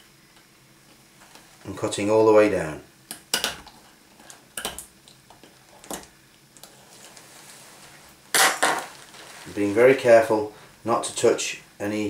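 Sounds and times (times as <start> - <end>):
handling noise: 6.8 - 10.0.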